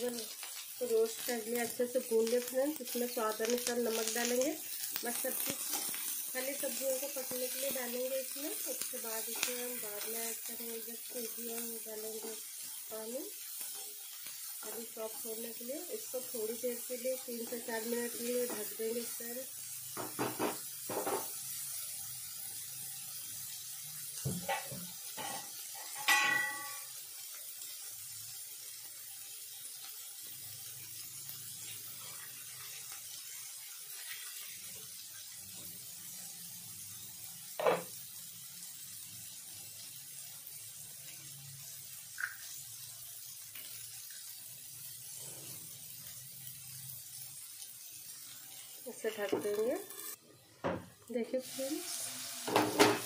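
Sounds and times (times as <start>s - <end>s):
food sizzling in oil: 0.0s - 53.0s
utensil clinking on pan: 24.5s - 26.9s.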